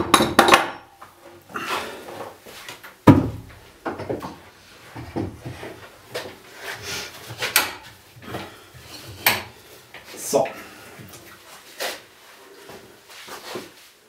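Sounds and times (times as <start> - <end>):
knocks and clatters on wood: 0.0 - 0.8, 3.0 - 6.4.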